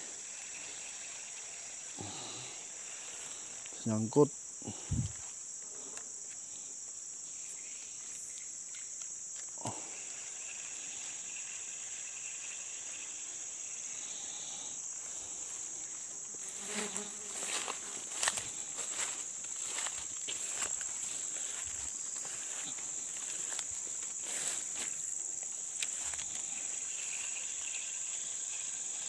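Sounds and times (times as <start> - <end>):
insects droning: 0.0 - 29.0
rustling footsteps through undergrowth: 15.3 - 26.5.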